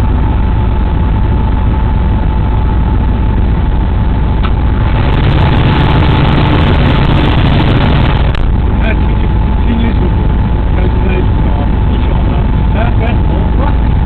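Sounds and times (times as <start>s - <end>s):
locomotive rumble: 0.0s - 14.0s.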